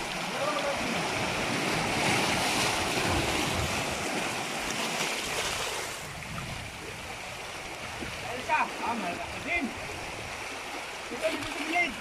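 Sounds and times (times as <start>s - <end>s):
waves rushing: 0.0s - 12.0s
wind on microphone: 0.9s - 8.3s.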